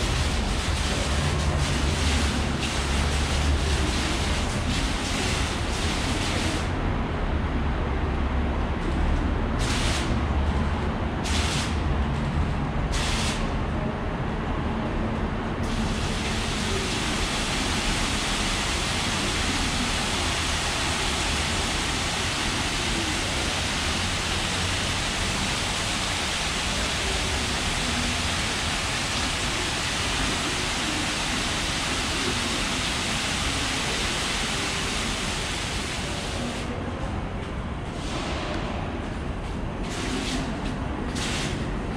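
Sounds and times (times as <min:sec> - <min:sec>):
falling water hiss: 0:15.7 - 0:36.7.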